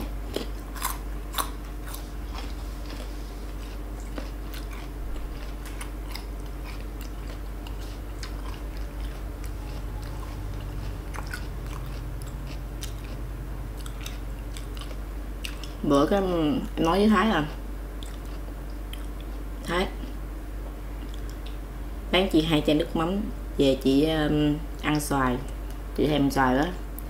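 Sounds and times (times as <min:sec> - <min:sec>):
person chewing crisp fruit: 0:00.0 - 0:15.9, 0:16.7 - 0:20.2, 0:20.9 - 0:21.6.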